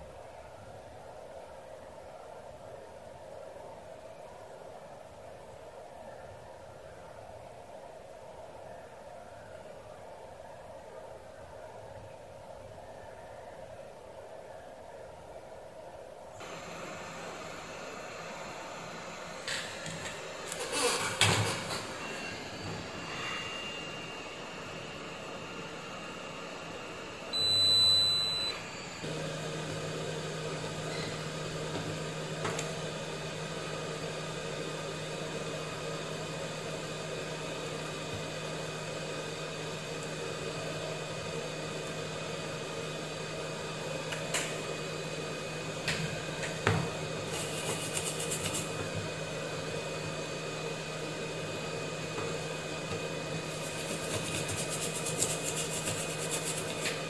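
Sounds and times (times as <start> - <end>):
fan hum: 0.0 - 57.0
short electronic beep: 27.3 - 28.6
brush scrubbing circuit board: 47.3 - 48.7, 53.5 - 56.8.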